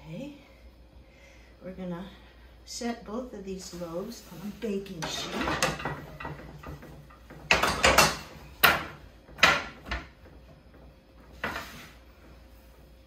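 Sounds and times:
metal baking sheet clattering: 4.9 - 10.0.

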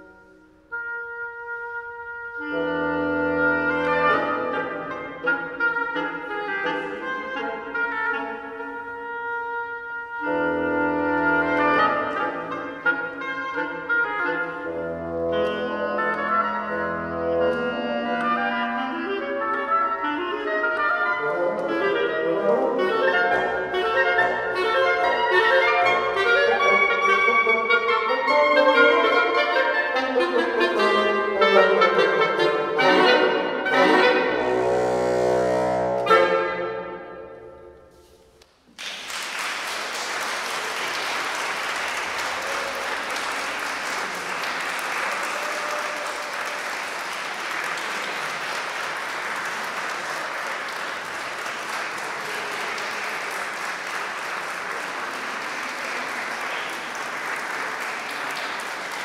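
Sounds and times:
woodwind trio playing: 0.0 - 38.4
audience applause: 38.7 - 59.0.

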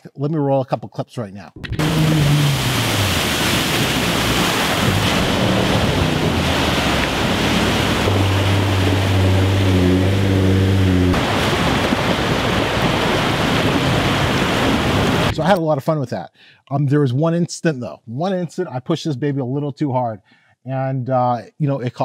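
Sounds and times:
wind noise on microphone: 1.6 - 15.4
heavy splashing through water: 1.8 - 15.4
engine steady note: 4.8 - 11.3.

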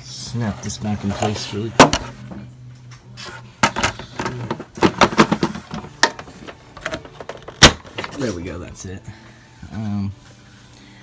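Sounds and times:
plastic parts clicking and knocking: 3.6 - 8.1.

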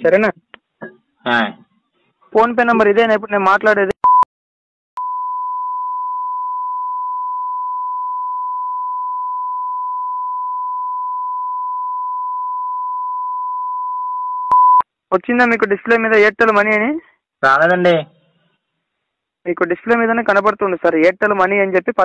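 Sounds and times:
steady censor beep tone: 4.0 - 4.3, 5.0 - 14.9.

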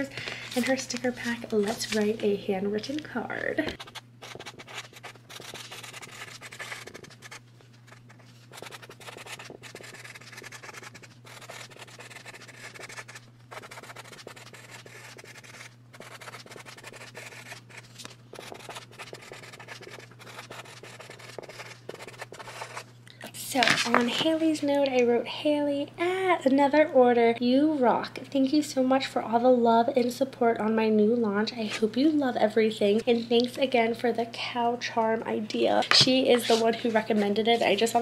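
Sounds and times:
marker scratching on card: 3.8 - 22.9, 36.3 - 37.8.

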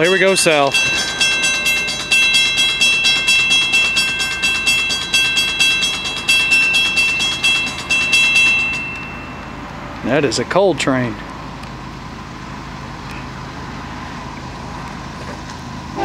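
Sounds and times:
crossing bell ringing rapidly: 0.0 - 9.9.

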